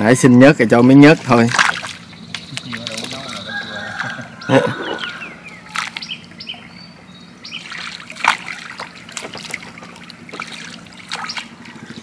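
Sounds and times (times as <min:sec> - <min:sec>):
water dripping and splashing: 0:01.3 - 0:03.6, 0:05.6 - 0:06.2, 0:07.5 - 0:12.0.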